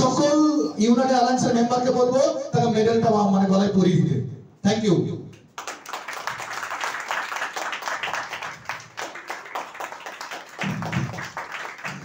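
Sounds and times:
crowd applause: 5.6s - 12.0s.

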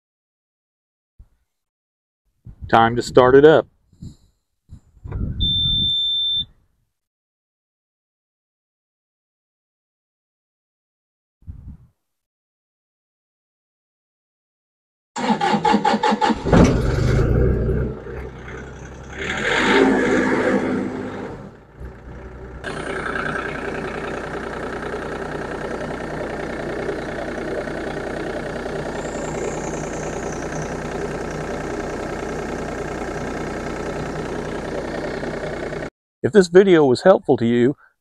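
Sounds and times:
diesel engine cranking and idling: 15.2s - 35.9s.

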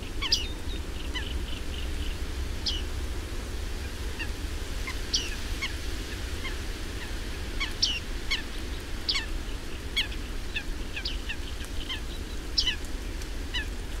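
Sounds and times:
birds calling: 0.0s - 2.9s, 4.2s - 5.8s, 6.4s - 12.9s.

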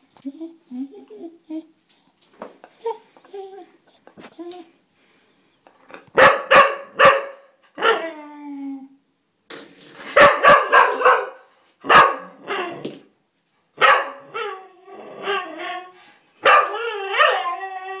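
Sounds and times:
puppy barking: 6.2s - 8.0s, 10.2s - 12.8s, 13.8s - 14.4s, 16.4s - 17.4s.

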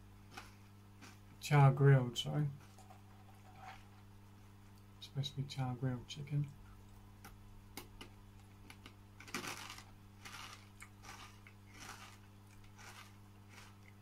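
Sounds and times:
low electrical hum: 0.0s - 14.0s
crunching snack sticks: 0.3s - 1.2s, 8.7s - 14.0s.

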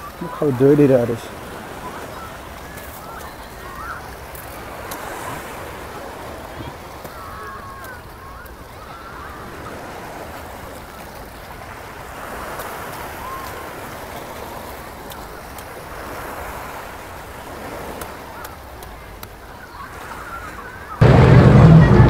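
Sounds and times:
sea waves washing against rocks: 0.0s - 22.0s.

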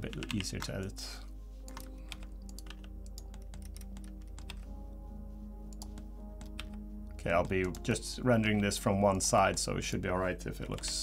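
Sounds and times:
keyboard keys clicking: 0.0s - 0.8s, 1.7s - 4.7s, 5.7s - 8.0s, 10.6s - 11.0s
quiet background music: 0.0s - 11.0s.

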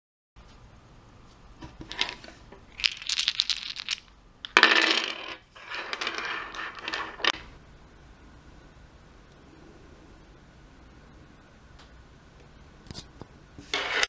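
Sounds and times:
dice clattering on a tabletop: 1.6s - 7.5s.

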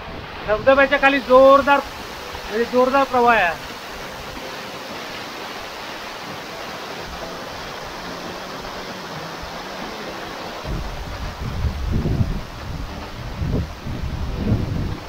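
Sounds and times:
waterfall crashing onto rocks: 0.0s - 15.0s
wind buffeting microphone: 7.0s - 15.0s.

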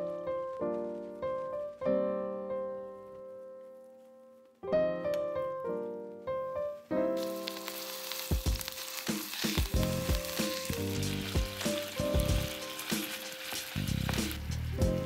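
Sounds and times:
ground beef sizzling in frying pan: 7.2s - 15.0s.

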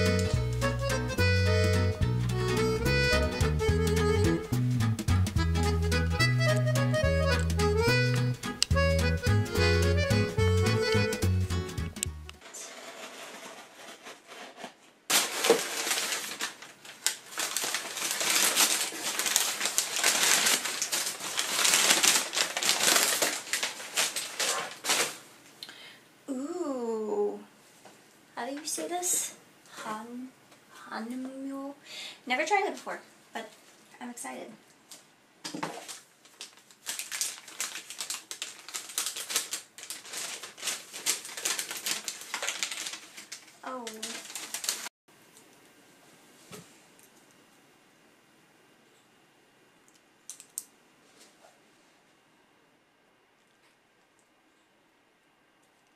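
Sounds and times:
packing paper crinkling: 12.4s - 25.3s, 35.6s - 44.9s.

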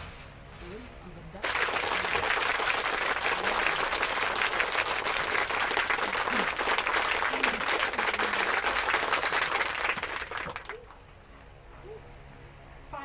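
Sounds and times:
crowd applauding: 1.4s - 11.2s.

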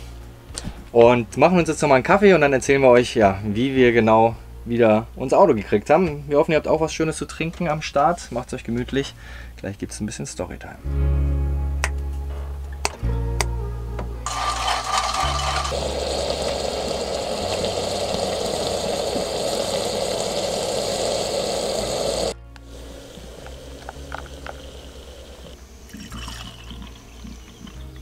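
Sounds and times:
espresso maker hissing steam: 14.3s - 27.8s
milk pouring: 14.3s - 28.0s.

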